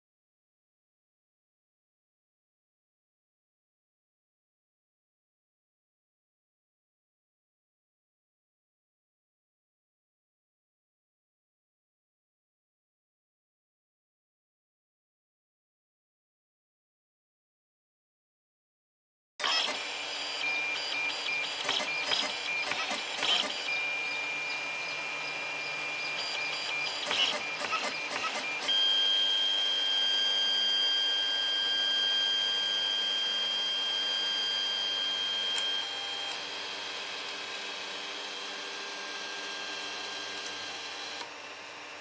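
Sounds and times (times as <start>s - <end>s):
printer stepper motors whining: 19.4s - 42.0s.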